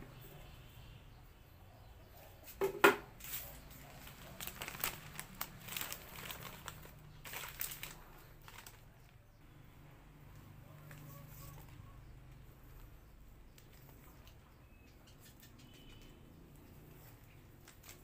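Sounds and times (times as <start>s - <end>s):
plastic film crinkling: 3.2s - 9.2s, 17.1s - 18.0s.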